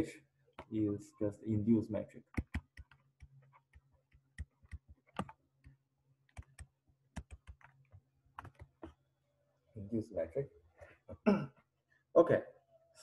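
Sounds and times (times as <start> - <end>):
stylus tapping on tablet: 2.3 - 9.0.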